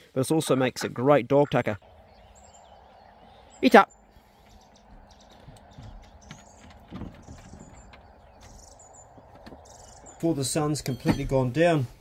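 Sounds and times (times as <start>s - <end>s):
dog paws tapping on wood: 4.8s - 10.2s.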